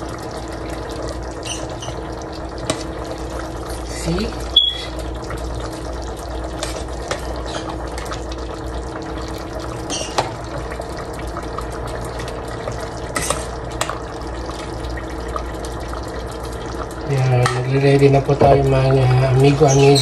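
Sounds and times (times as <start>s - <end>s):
stew simmering in a pot: 0.0s - 20.0s
ladle clinking and scraping pot: 1.4s - 2.0s, 9.9s - 10.3s.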